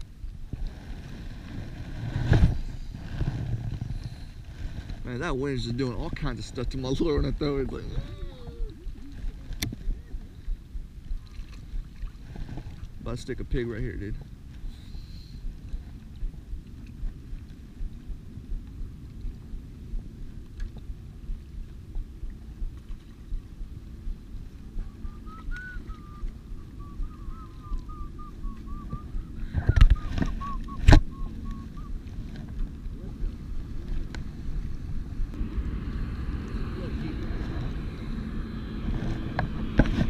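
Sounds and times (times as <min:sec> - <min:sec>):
water lapping: 0:00.0 - 0:40.0
wind rumble: 0:00.0 - 0:40.0
wavering whistle-like tone: 0:24.8 - 0:32.0.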